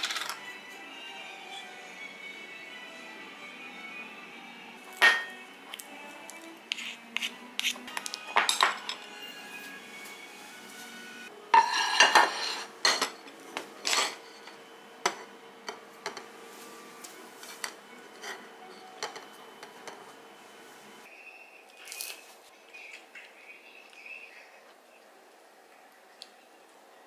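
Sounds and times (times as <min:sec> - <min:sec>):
dishes clattering on plate: 0:05.0 - 0:05.4, 0:08.3 - 0:09.1, 0:11.5 - 0:13.2, 0:13.8 - 0:16.3, 0:17.6 - 0:20.1
tableware knocks and taps: 0:05.0 - 0:05.4, 0:08.3 - 0:09.0
spoon scraping in glass bowl: 0:11.6 - 0:12.7.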